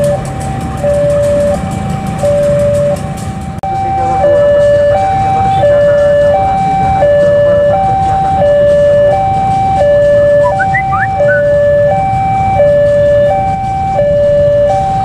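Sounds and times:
level crossing two-tone alarm: 3.6s - 15.0s.

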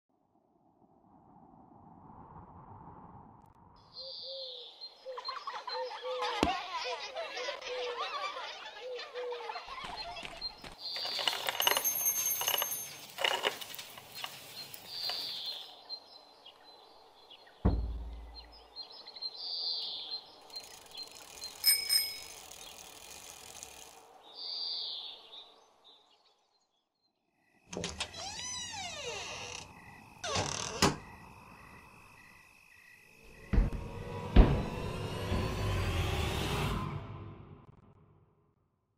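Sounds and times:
birds chirping: 3.8s - 34.0s
children laughing: 5.0s - 10.6s
bells ringing: 11.2s - 13.4s, 21.6s - 22.6s
deep dull thud: 17.6s - 18.5s.

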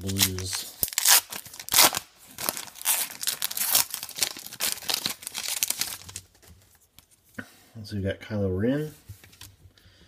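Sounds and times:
foil wrapper crinkling: 0.0s - 6.5s.

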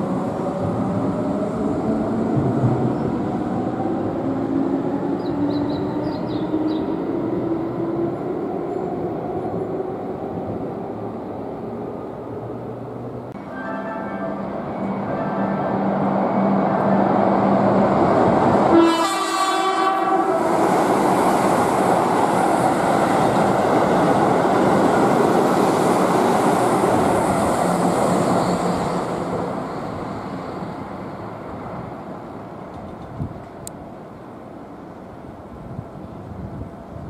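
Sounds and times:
train horn blast: 18.7s - 20.6s.

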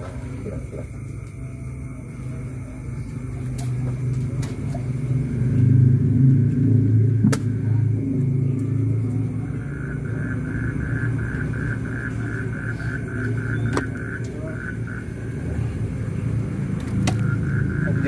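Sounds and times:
vehicle engine rumbling: 0.0s - 18.0s
high repeated pulsing: 9.2s - 18.0s.

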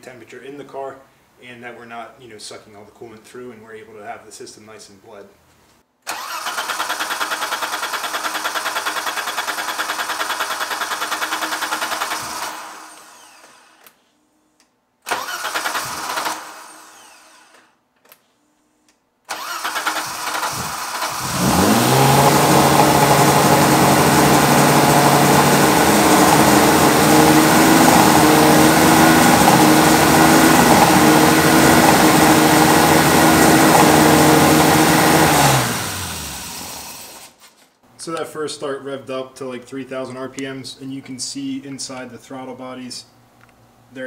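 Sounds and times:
car engine starting and idling: 6.1s - 13.4s, 15.1s - 16.8s, 19.3s - 37.3s.

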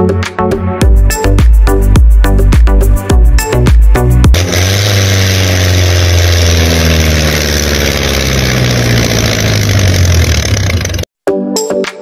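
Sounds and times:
tractor engine idling: 4.4s - 11.1s.

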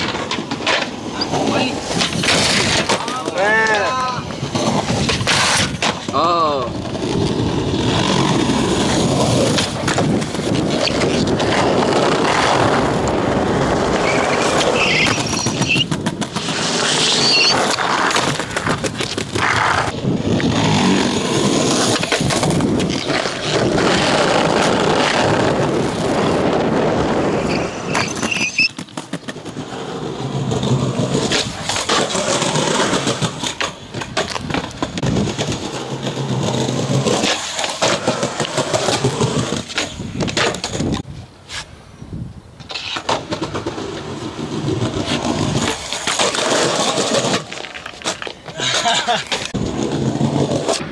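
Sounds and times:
skateboard clacks: 0.0s - 41.1s, 42.6s - 50.9s
skateboard wheels rolling on pavement: 0.0s - 50.9s.

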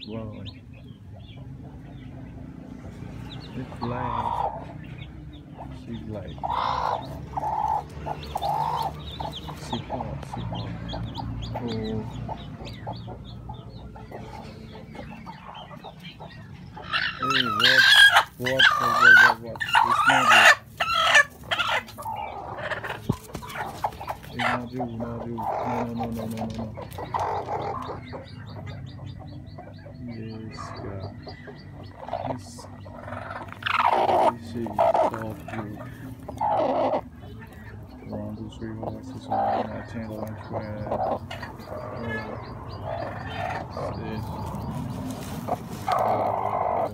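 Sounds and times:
hens clucking: 0.0s - 46.9s
hen squawking loudly: 16.9s - 23.0s.

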